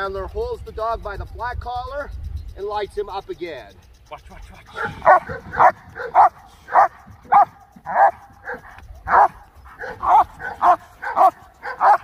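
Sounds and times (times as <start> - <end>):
dog barking: 4.7 - 12.0.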